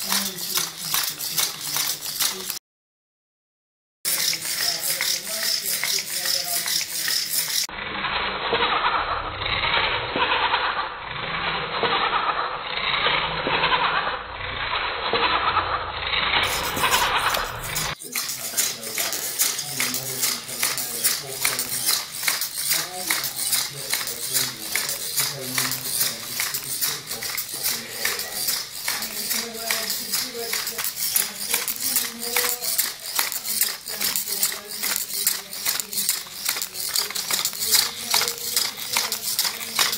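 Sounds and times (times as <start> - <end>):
legs tapping on tile floor: 0.0 - 2.6, 4.1 - 7.7, 16.4 - 39.9
servos whirring: 0.0 - 2.6, 4.1 - 39.9.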